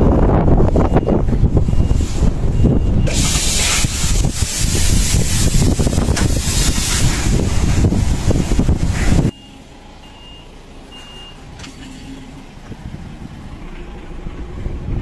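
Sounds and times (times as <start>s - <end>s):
wind buffeting microphone: 0.0s - 9.4s, 12.4s - 15.0s
vehicle rumble: 0.0s - 15.0s
loud rushing hiss: 3.0s - 9.3s
faint short beeps: 9.3s - 12.4s.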